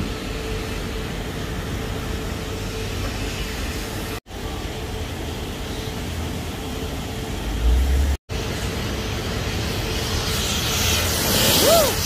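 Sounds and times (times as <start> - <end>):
car-wash vacuum hissing: 5.6 - 12.0.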